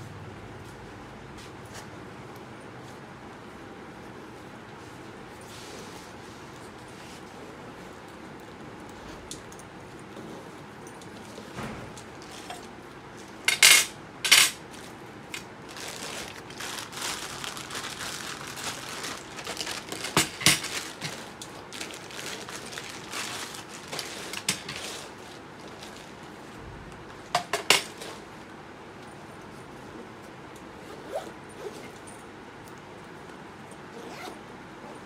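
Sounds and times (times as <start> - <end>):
plastic wrapping rustling: 14.6 - 26.6.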